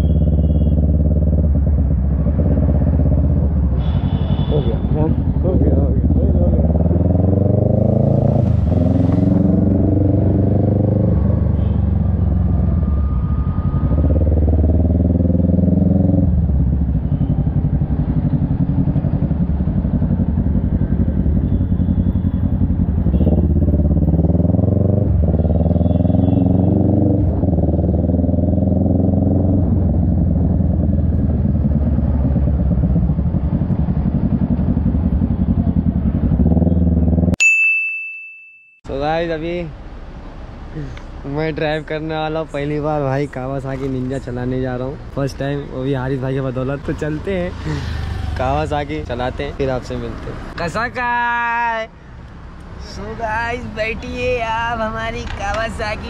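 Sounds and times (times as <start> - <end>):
motorcycle engine accelerating: 0.0 - 3.8, 5.0 - 37.4, 46.0 - 49.4.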